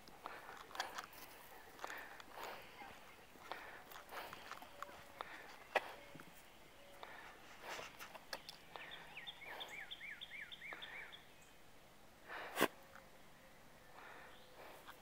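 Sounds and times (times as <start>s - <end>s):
bird singing: 1.5s - 11.7s, 13.4s - 15.0s.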